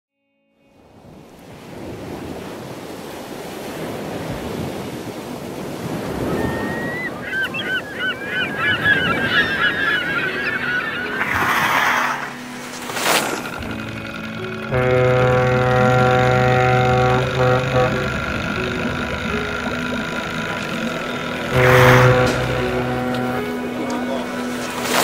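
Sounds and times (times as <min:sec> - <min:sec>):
sea surf washing: 0:01.0 - 0:25.0
gulls calling: 0:05.7 - 0:25.0.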